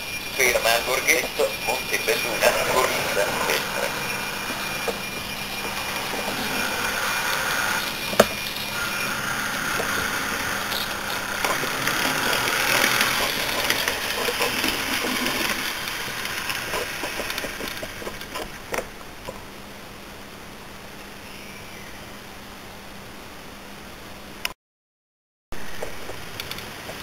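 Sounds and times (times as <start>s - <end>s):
model train motor whine: 0.0s - 19.1s
wheels rolling on rails: 0.0s - 19.5s, 25.7s - 27.0s.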